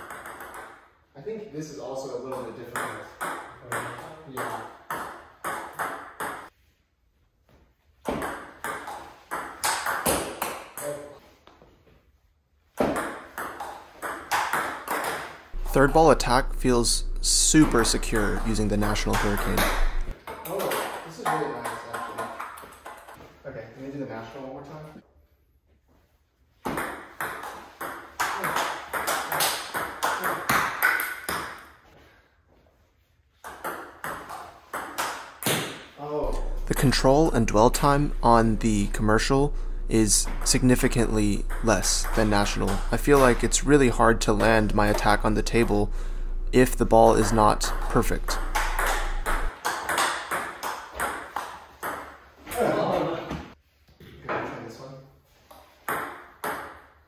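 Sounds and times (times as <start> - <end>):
table tennis ball rally: 0.0 - 0.9, 2.3 - 6.5, 8.0 - 11.1, 12.8 - 23.2, 26.6 - 31.8, 33.4 - 53.5
table tennis ball clicking: 47.2 - 50.2.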